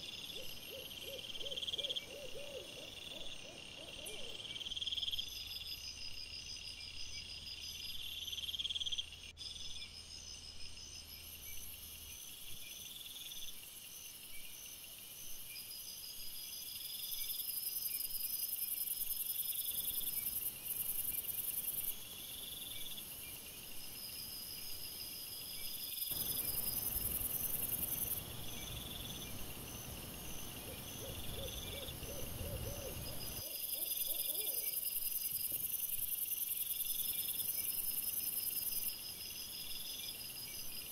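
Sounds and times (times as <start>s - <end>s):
crickets chirping: 0.0s - 40.9s
steady high hiss: 26.1s - 33.4s.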